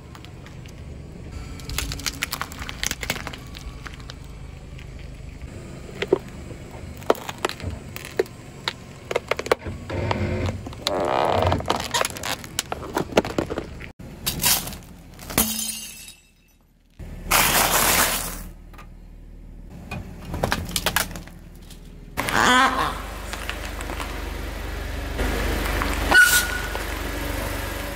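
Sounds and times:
loud crunching: 0:00.0 - 0:15.8, 0:17.1 - 0:18.6, 0:20.2 - 0:24.6
car rolling rumble: 0:00.0 - 0:27.9
plastic tub cracking under tyre: 0:01.6 - 0:04.2, 0:06.9 - 0:15.4, 0:20.3 - 0:21.4.

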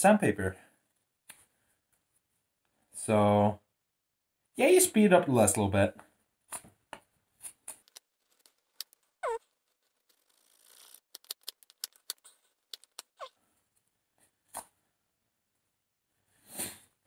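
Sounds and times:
falling squeaks: 0:07.8 - 0:13.4.

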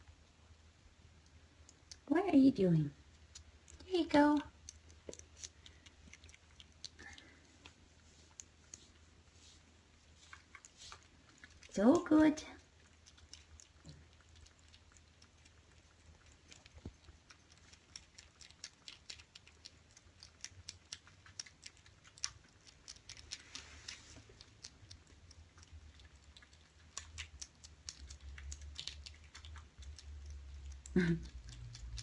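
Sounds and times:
kittens chewing and licking: 0:00.0 - 0:32.0
low steady hum: 0:00.0 - 0:32.0.

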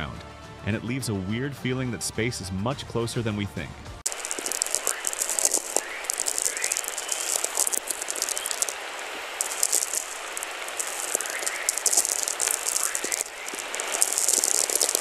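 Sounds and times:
dense crackling hiss: 0:04.0 - 0:15.0
faint rising chirps: 0:04.1 - 0:15.0.

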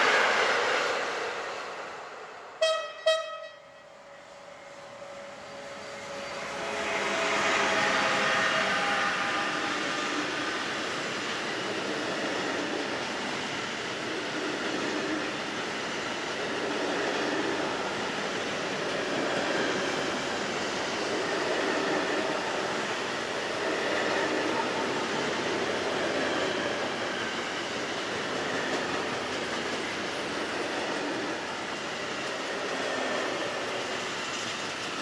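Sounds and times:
train wheels rolling on rails: 0:00.0 - 0:02.6, 0:04.0 - 0:35.0
locomotive whine: 0:02.0 - 0:13.2.

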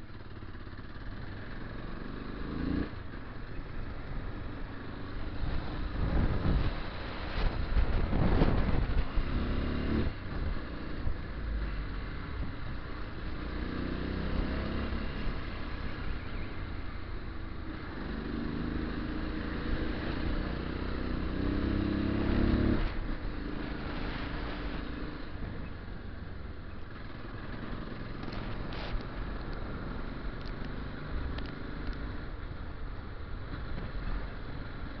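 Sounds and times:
motorcycle engine revving: 0:00.2 - 0:03.3, 0:13.3 - 0:16.0, 0:17.6 - 0:25.5
wind rumble on microphone: 0:05.2 - 0:16.2.

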